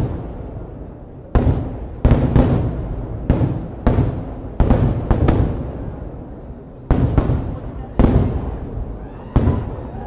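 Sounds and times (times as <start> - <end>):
fireworks bangs with rumbling decay: 0.0 - 10.0.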